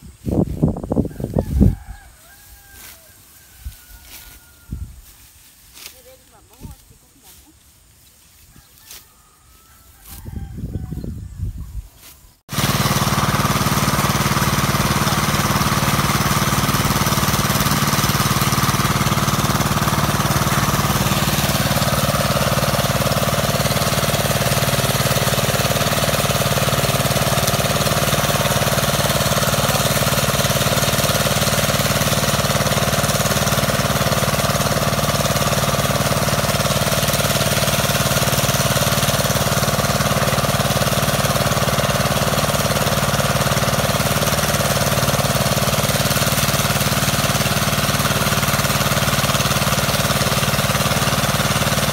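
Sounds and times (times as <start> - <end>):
small engine running steadily: 1.4 - 7.6, 12.0 - 51.9.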